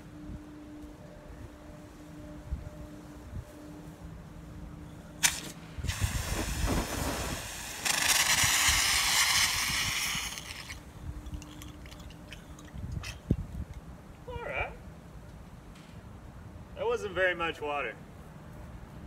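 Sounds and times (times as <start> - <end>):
fire extinguisher spraying hiss: 5.2 - 10.8.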